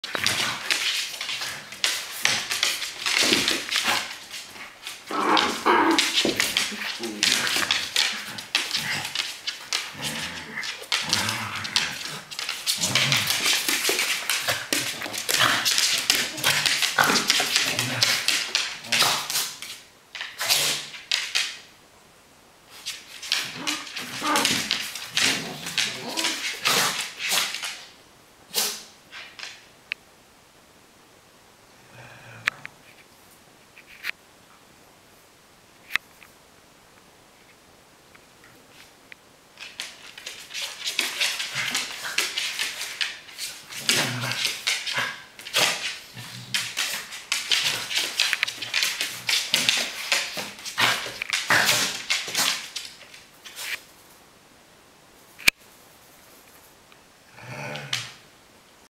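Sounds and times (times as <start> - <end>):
dogs growling and snarling: 0.0 - 19.4, 23.3 - 27.2, 41.2 - 42.8, 43.6 - 52.6, 57.3 - 58.2
scuffling on wooden floor: 0.0 - 21.1, 22.7 - 27.8.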